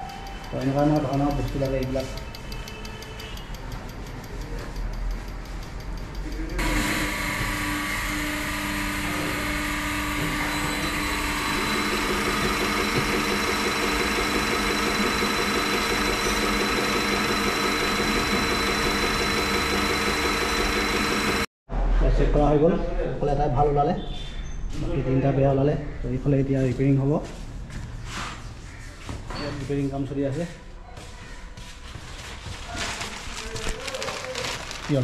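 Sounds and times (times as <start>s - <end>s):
workshop machine humming: 0.0s - 4.0s, 6.3s - 21.5s
fast regular pulsing: 10.8s - 21.5s.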